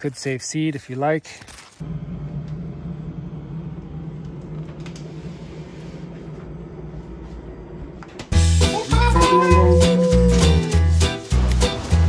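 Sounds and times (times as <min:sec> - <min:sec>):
refrigerator humming: 0:01.8 - 0:10.9
loud music: 0:08.4 - 0:12.0.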